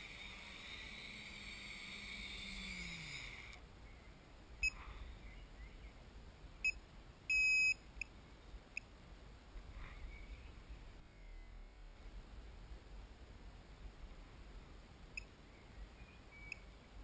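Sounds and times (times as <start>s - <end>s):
drone motors spinning down: 0.0s - 3.6s
buzzer beeps: 6.6s - 7.8s.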